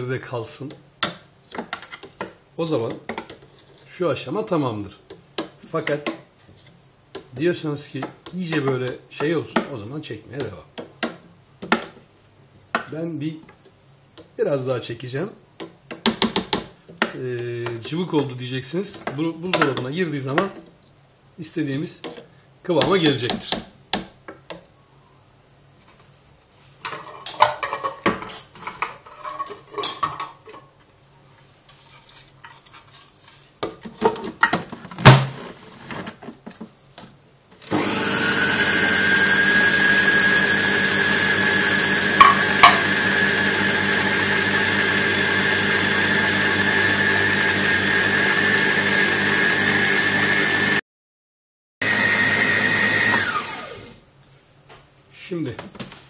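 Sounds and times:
food processor motor whining: 0:37.6 - 0:50.8, 0:51.8 - 0:54.0.

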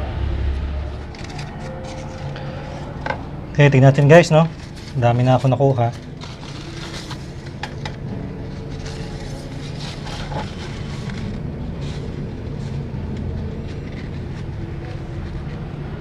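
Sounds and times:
vehicle engine idling: 0:00.0 - 0:16.0
paper towel rustling: 0:03.6 - 0:16.0.

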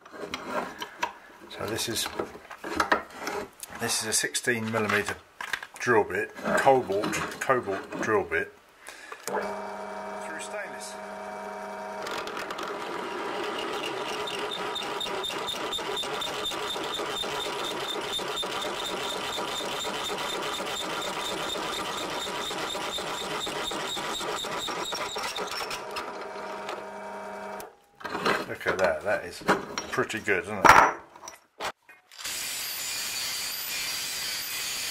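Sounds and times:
drill press motor hum: 0:09.3 - 0:27.7
drill bit cutting metal: 0:13.3 - 0:25.9, 0:32.2 - 0:34.9.

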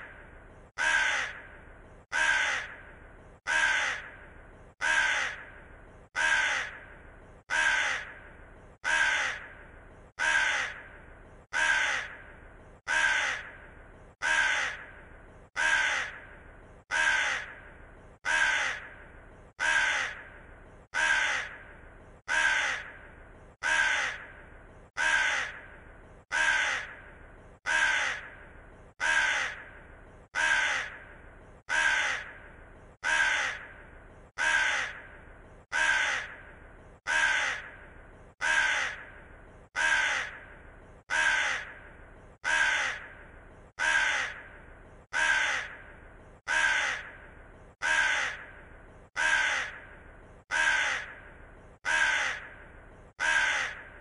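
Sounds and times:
crow cawing: 0:00.8 - 0:02.9, 0:03.5 - 0:05.6, 0:06.2 - 0:06.9, 0:07.5 - 0:09.6, 0:10.2 - 0:12.3, 0:12.9 - 0:13.6, 0:14.2 - 0:15.0, 0:15.6 - 0:16.3, 0:16.9 - 0:19.0, 0:19.6 - 0:21.7, 0:22.3 - 0:23.0, 0:23.6 - 0:24.4, 0:25.0 - 0:25.7, 0:26.3 - 0:28.4, 0:29.0 - 0:29.7, 0:30.4 - 0:31.1, 0:31.7 - 0:32.4, 0:33.0 - 0:33.8, 0:34.4 - 0:35.1, 0:35.7 - 0:36.4, 0:37.1 - 0:37.8, 0:38.4 - 0:39.2, 0:39.8 - 0:40.5, 0:41.1 - 0:41.8, 0:42.4 - 0:43.2, 0:43.8 - 0:44.5, 0:45.1 - 0:45.9, 0:46.5 - 0:47.2, 0:47.8 - 0:48.6, 0:49.2 - 0:49.9, 0:50.5 - 0:51.2, 0:51.8 - 0:52.6, 0:53.2 - 0:54.0.

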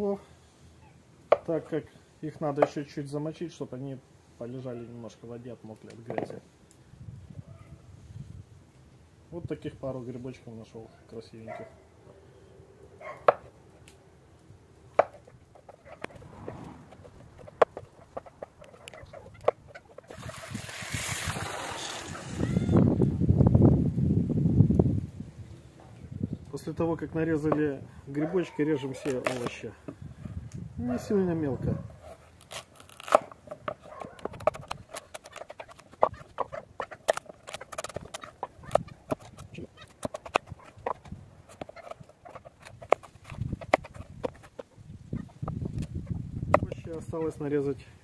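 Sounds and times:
knife cutting on wooden board: 0:15.0 - 0:20.0, 0:32.0 - 0:44.7
water spraying into plastic bowl: 0:20.1 - 0:22.7.

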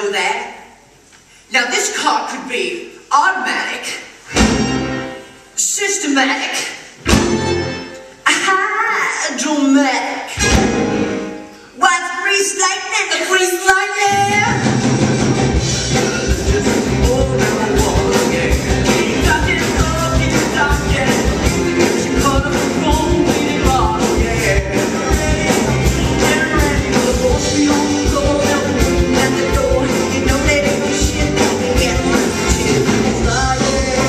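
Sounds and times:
live rock and roll music: 0:04.2 - 0:05.5, 0:07.0 - 0:08.2, 0:10.3 - 0:11.6, 0:14.0 - 0:34.0
driving drum beat: 0:14.1 - 0:34.0
person singing: 0:16.0 - 0:34.0.

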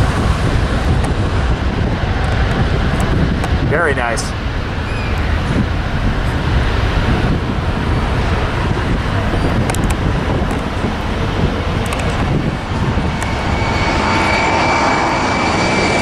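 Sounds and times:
distant jet airliner taking off: 0:00.0 - 0:16.0
thin engine whine: 0:11.2 - 0:16.0.

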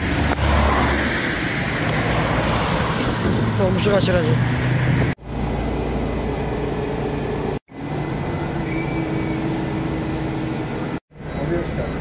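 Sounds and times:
vehicle in motion rumble: 0:00.0 - 0:12.0.

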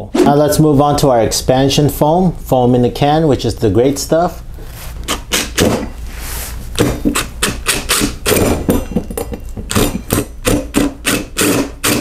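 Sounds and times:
impact driver hammering: 0:05.3 - 0:05.9, 0:06.8 - 0:12.0.

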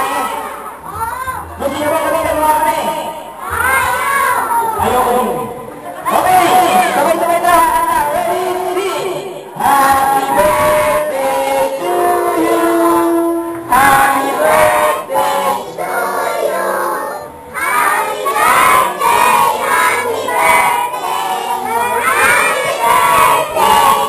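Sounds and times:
music: 0:09.5 - 0:24.0
children singing: 0:09.6 - 0:24.0.

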